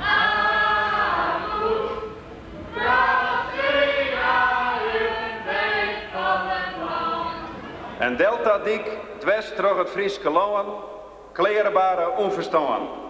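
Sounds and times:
voices singing long notes: 0.0 - 8.0.

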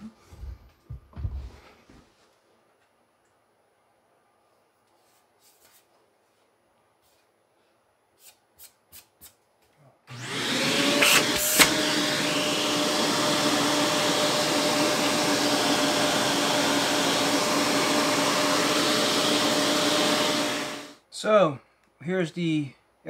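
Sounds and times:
handheld vacuum cleaner humming: 10.1 - 21.0.

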